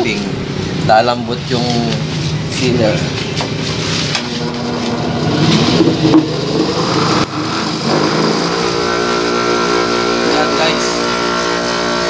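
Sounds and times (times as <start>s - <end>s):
bench buffing machine motor hum: 4.2s - 12.0s.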